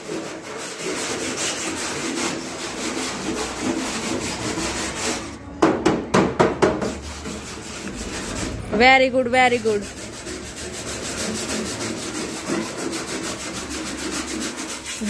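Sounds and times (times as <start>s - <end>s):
wire brush scraping metal: 9.6s - 15.0s.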